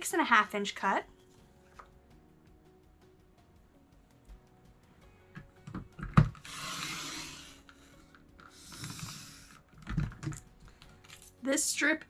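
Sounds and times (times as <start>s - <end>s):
blade scraping along rail: 6.4s - 9.6s.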